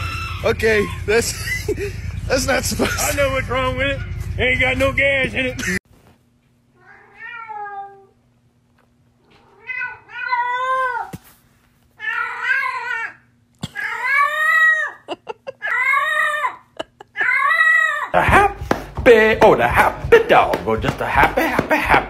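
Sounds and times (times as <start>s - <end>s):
cat meowing: 6.8s - 8.1s, 9.3s - 11.1s, 12.0s - 13.2s.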